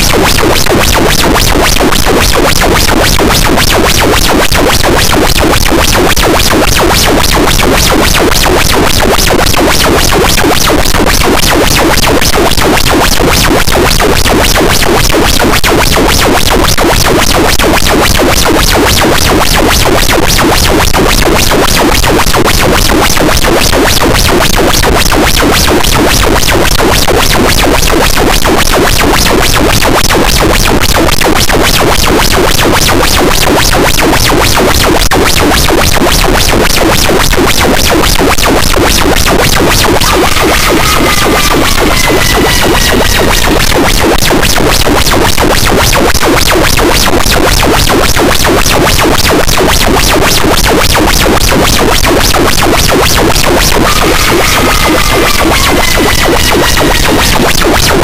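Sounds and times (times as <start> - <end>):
pulsing distorted noise wall: 0.0 - 58.0.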